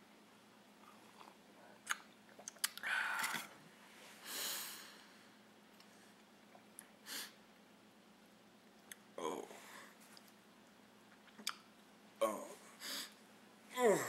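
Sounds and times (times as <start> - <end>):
person sipping from glass: 0.8 - 3.5.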